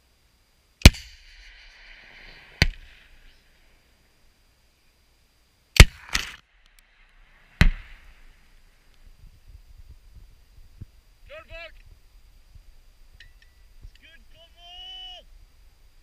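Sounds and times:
recoilless rifle blasts: 0:00.8 - 0:03.8, 0:05.8 - 0:08.6
rounds bursting: 0:00.8 - 0:03.9, 0:05.8 - 0:08.9.

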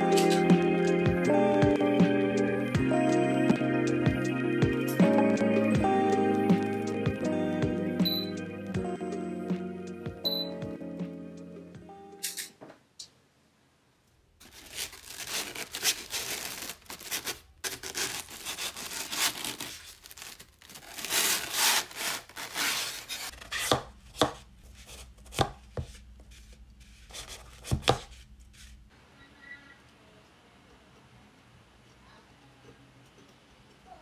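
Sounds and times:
polystyrene foam rubbing and scraping: 0:14.4 - 0:23.7, 0:24.4 - 0:28.9
knife cutting floral foam: 0:14.4 - 0:28.8.

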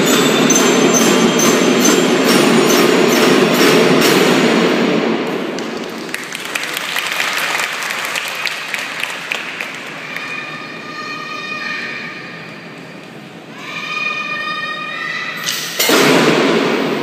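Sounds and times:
drum band with glockenspiels: 0:00.0 - 0:04.4
people clapping: 0:05.5 - 0:10.6.

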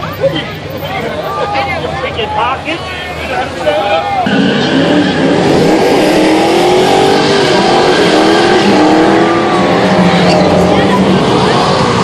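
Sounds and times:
car engine revving hard: 0:04.2 - 0:12.0
spinning tyres rushing: 0:04.2 - 0:12.0.

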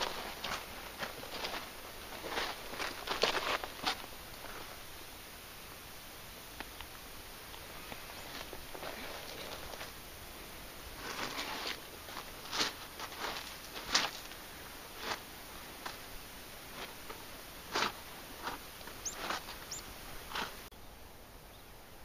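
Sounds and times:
footsteps on sand and pebbles: 0:00.0 - 0:04.9, 0:10.9 - 0:20.7
faint hiss: 0:00.0 - 0:22.0.

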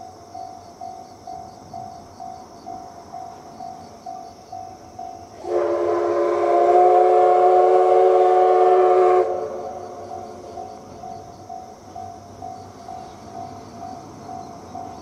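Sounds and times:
steam locomotive whistle blast: 0:05.4 - 0:09.8.

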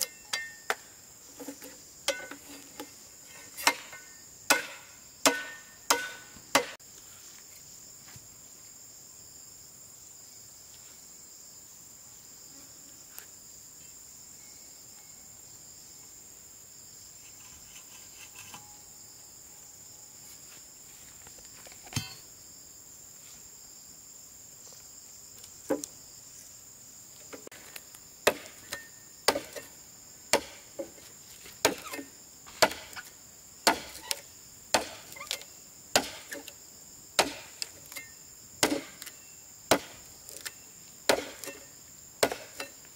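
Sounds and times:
high insect drone: 0:00.0 - 0:42.9
hand tool striking wood: 0:01.4 - 0:03.0, 0:03.6 - 0:06.8, 0:21.9 - 0:22.2, 0:28.2 - 0:29.7, 0:30.3 - 0:36.6, 0:37.2 - 0:42.9.

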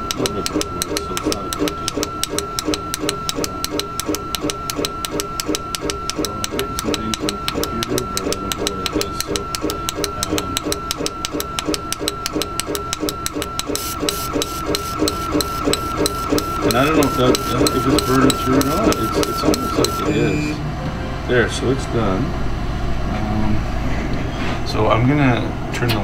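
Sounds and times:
laser cutter head clicking: 0:00.0 - 0:20.6
steady high tone: 0:00.0 - 0:23.7.

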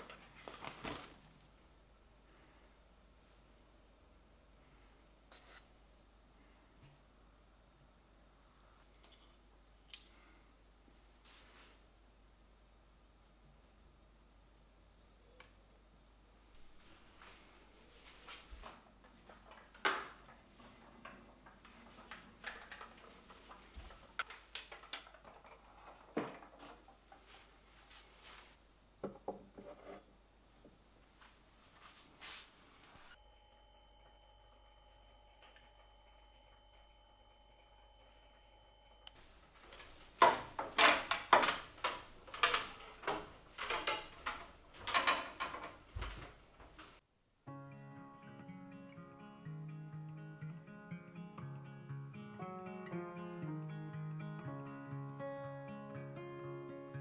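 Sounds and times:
faint soft rustles: 0:00.0 - 0:01.7, 0:10.2 - 0:12.0, 0:16.4 - 0:19.6, 0:25.5 - 0:28.6, 0:31.0 - 0:33.2
wooden ornaments clicking and knocking: 0:19.0 - 0:27.3, 0:39.2 - 0:47.0.

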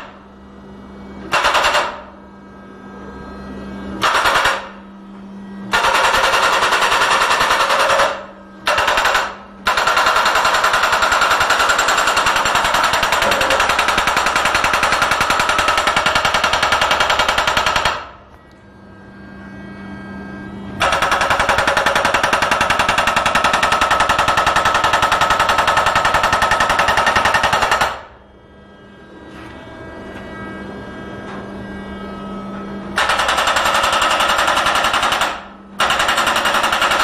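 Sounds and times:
hydraulic hammer pounding steel: 0:00.0 - 0:00.3, 0:01.2 - 0:02.3, 0:03.9 - 0:18.3, 0:20.8 - 0:28.2, 0:32.8 - 0:37.0
steady machine hum: 0:00.0 - 0:37.0.

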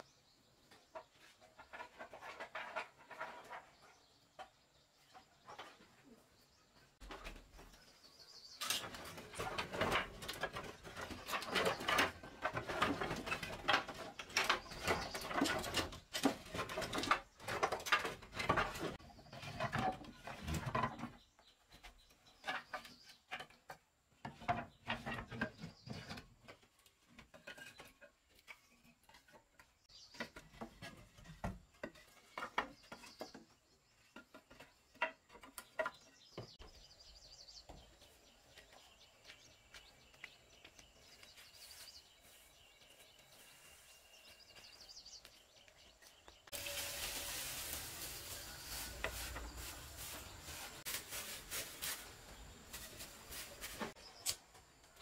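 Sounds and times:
wooden boards clattering together: 0:01.4 - 0:03.8, 0:08.6 - 0:21.2, 0:30.1 - 0:36.6.

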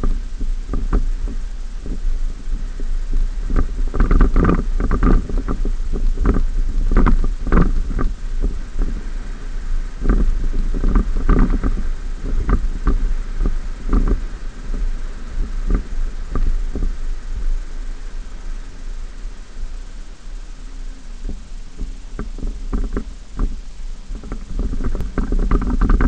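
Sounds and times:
pickup truck low rumble: 0:00.0 - 0:26.0
knocks and thumps over bumps: 0:03.4 - 0:09.0, 0:21.3 - 0:26.0.

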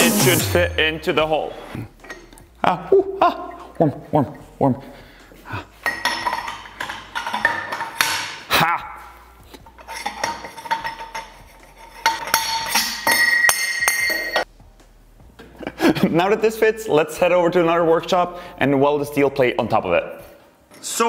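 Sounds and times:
steel pipe scraping and clinking: 0:09.6 - 0:14.5.

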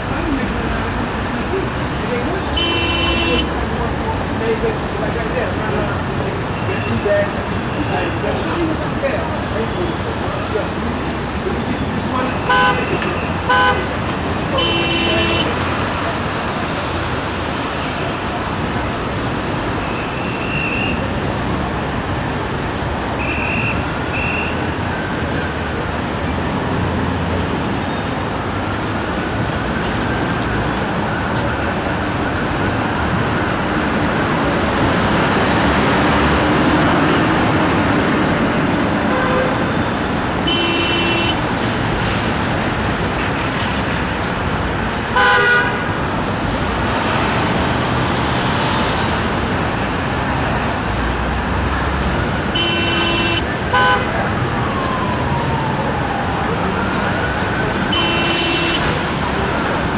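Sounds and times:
traffic rumble: 0:00.0 - 0:59.9
car horns honking: 0:02.5 - 0:03.6, 0:12.4 - 0:13.9, 0:14.5 - 0:15.6, 0:40.4 - 0:41.5, 0:45.1 - 0:46.0, 0:52.5 - 0:54.1, 0:57.9 - 0:59.0.

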